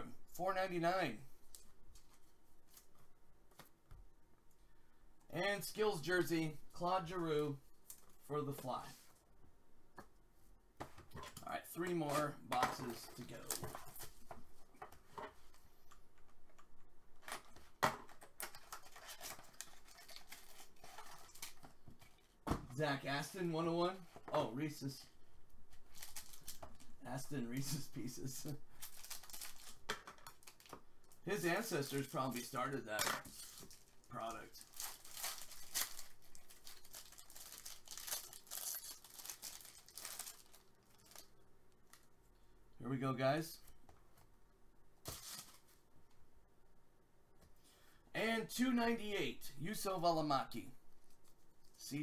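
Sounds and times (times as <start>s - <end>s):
cardboard and wrapper tearing: 18.4s - 21.7s, 28.8s - 30.7s, 34.6s - 41.3s.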